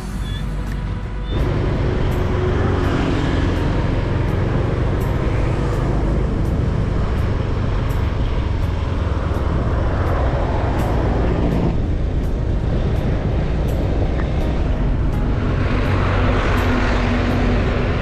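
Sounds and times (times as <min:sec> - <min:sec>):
heavy low rumble: 0:00.0 - 0:18.0
wind and road noise: 0:00.0 - 0:18.0.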